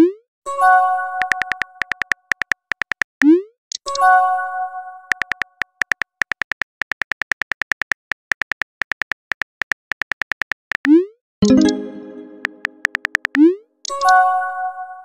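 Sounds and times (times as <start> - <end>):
phone keyboard tap clicks: 1.2 - 3.1, 5.1 - 10.9, 12.4 - 13.4.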